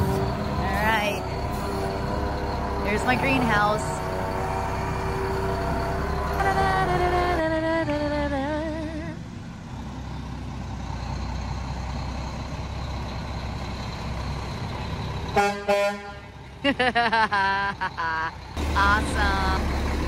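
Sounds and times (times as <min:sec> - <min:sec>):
truck engine running: 0:00.0 - 0:20.0
truck horn blasts and toots: 0:15.3 - 0:16.4.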